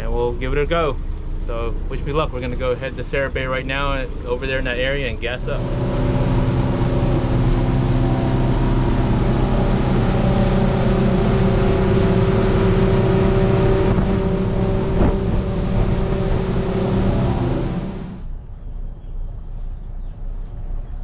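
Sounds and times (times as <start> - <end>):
outboard engine running: 0.0 - 18.7
wind and water rushing: 1.0 - 18.3
thump: 14.9 - 15.9.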